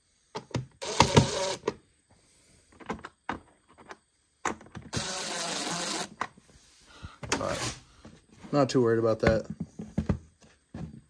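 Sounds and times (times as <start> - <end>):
power drill whirring: 0.8 - 1.8, 4.9 - 6.2.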